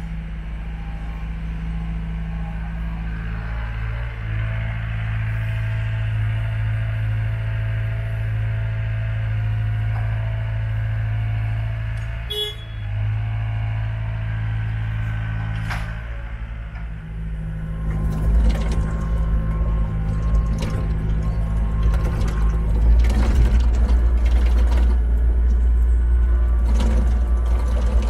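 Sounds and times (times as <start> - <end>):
excavator diesel engine running: 0.0 - 28.0
track clattering: 9.3 - 28.0.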